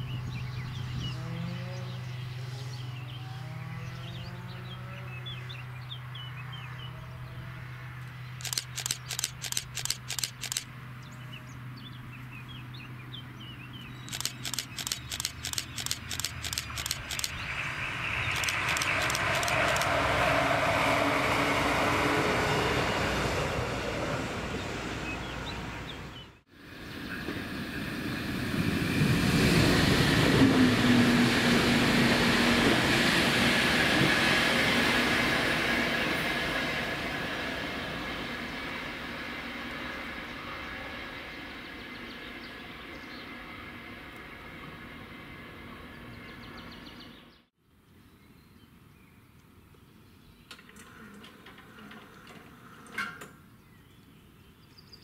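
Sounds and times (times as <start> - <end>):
diesel railcar engine drone: 0.0 - 47.2
rapid even clicks: 8.4 - 10.7, 14.0 - 17.4, 18.3 - 20.0
train wheels rumbling on rails: 18.3 - 25.4.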